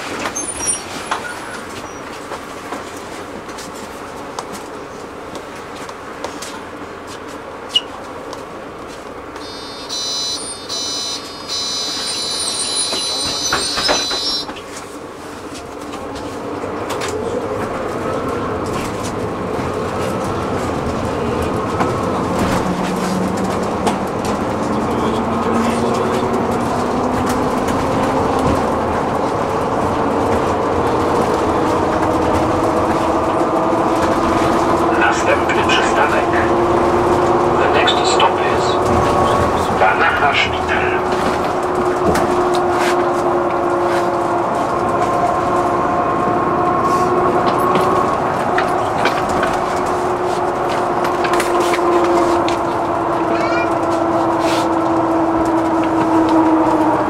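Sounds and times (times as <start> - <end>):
bus drive hum rising: 0.0 - 57.0
high-pitched electronic beeping: 9.4 - 14.5.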